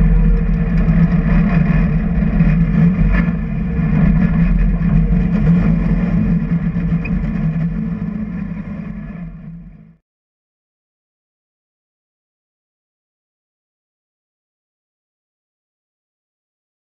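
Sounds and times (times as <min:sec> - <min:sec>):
car engine low drone: 0:00.0 - 0:10.0.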